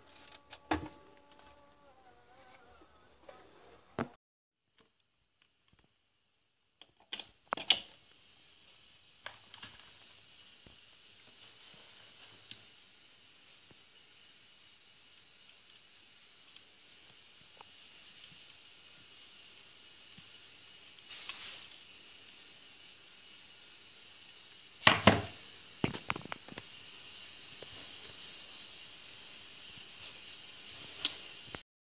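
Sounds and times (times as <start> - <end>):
steady high hiss: 7.4 - 31.6.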